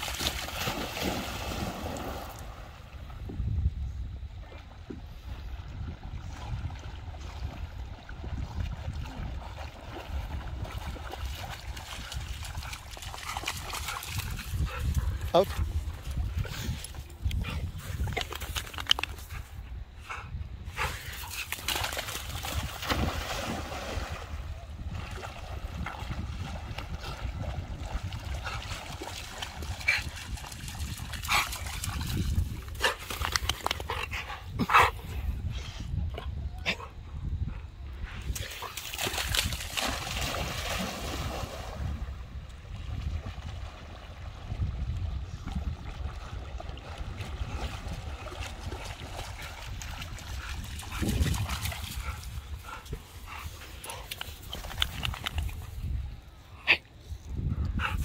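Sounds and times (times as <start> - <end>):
dog splashing through water: 0.0 - 2.8, 6.4 - 15.0, 21.0 - 33.9, 38.3 - 42.1, 42.8 - 52.5
wind rumble on microphone: 0.0 - 58.0.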